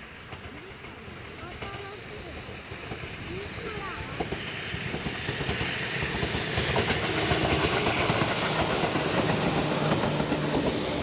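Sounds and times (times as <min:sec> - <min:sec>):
steady train hum: 0:00.0 - 0:11.0
train wheels clacking on rail joints: 0:00.0 - 0:11.0.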